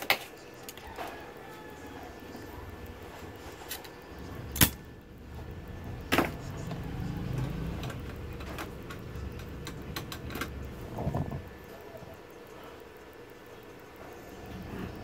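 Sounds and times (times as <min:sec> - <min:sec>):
sharp clicks: 0:03.7 - 0:10.8.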